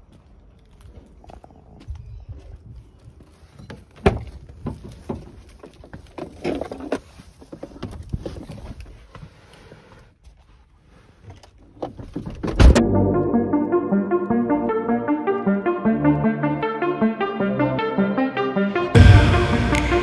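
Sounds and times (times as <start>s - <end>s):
loud thump: 19.0s - 20.0s.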